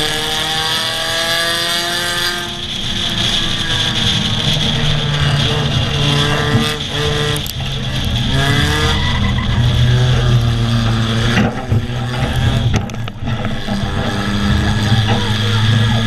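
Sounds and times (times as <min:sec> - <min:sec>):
race car engines revving: 0:00.0 - 0:16.0
wind and track noise: 0:00.0 - 0:16.0.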